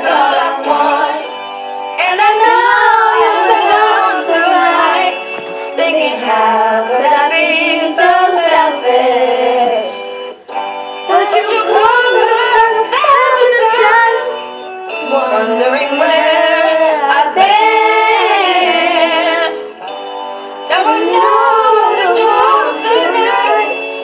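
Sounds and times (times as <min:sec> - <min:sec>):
girls singing in unison: 0:00.0 - 0:01.4, 0:02.0 - 0:10.0, 0:11.1 - 0:14.4, 0:15.0 - 0:19.7, 0:20.7 - 0:24.0
pop song playing from a tablet: 0:00.0 - 0:24.0.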